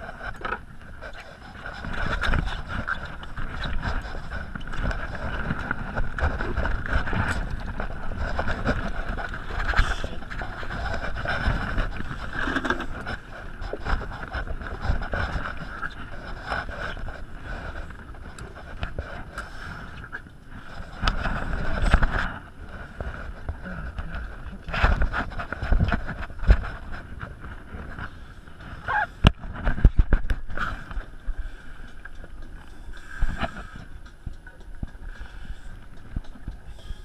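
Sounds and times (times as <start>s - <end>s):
wind buffeting microphone: 0.0s - 19.4s
small boat on choppy water: 0.0s - 37.0s.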